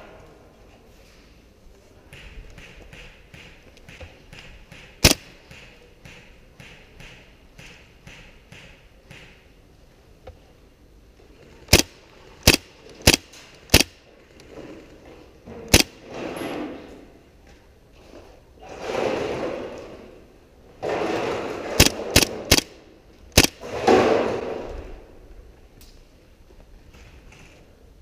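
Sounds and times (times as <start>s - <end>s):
airsoft gun shots: 4.3s - 9.4s, 11.7s - 14.0s, 15.7s - 16.1s, 21.4s - 24.6s.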